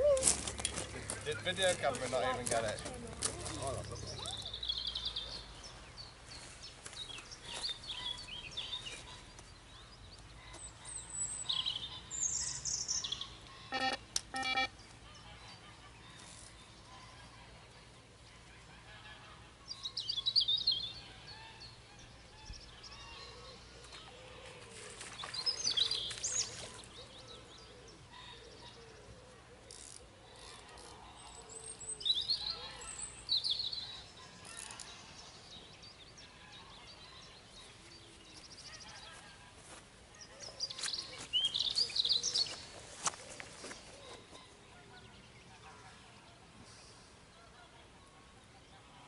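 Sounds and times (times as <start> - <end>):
songbirds chirping: 0.0 - 49.0
short beeps: 13.7 - 14.7.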